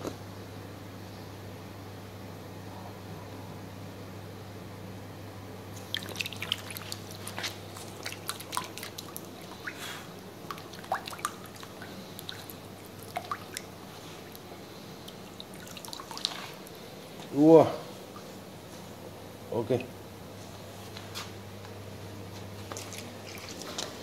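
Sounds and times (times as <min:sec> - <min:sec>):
water splashing and dripping: 0:05.8 - 0:09.8, 0:10.4 - 0:14.4, 0:15.0 - 0:16.8.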